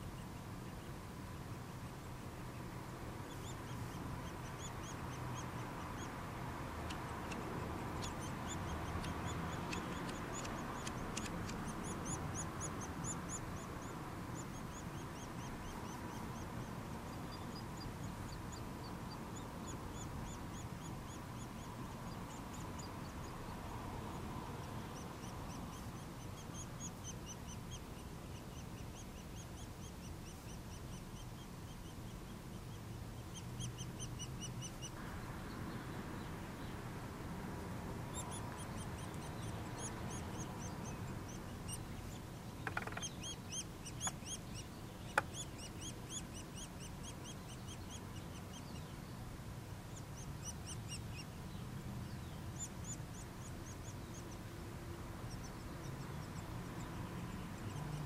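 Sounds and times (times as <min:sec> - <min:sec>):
woodpecker nestlings chirping: 0:03.2 - 0:23.4, 0:38.1 - 0:48.9
sharp knocks: 0:42.6 - 0:43.1.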